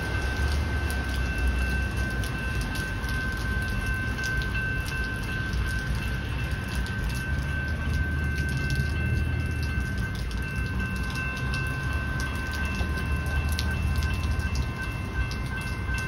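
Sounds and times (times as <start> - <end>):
level crossing bell ringing: 1.1 - 16.0.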